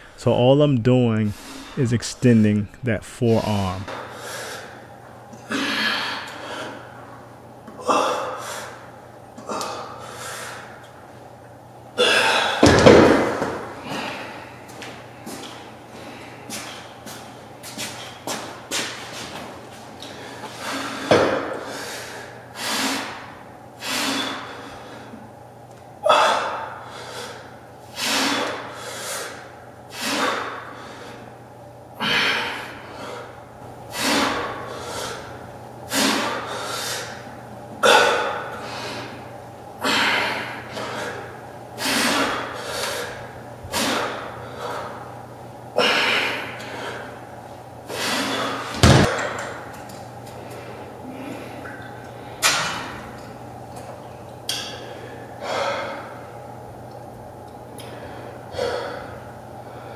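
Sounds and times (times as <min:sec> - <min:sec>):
low thud: 0:48.8 - 0:49.2.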